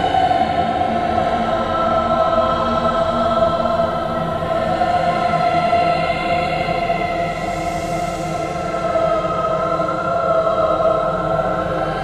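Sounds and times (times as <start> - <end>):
choir singing held notes: 1.1 - 6.0.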